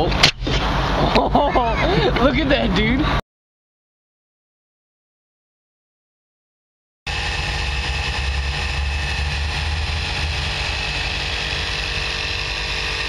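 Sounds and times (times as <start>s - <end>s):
air compressor motor running: 7.1s - 13.0s.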